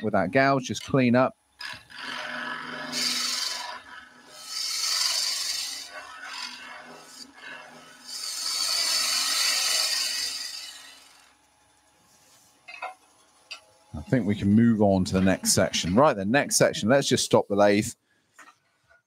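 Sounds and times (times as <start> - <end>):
lathe humming: 1.6 - 17.0
gouge hissing on spinning wood: 4.4 - 7.2, 8.0 - 11.3.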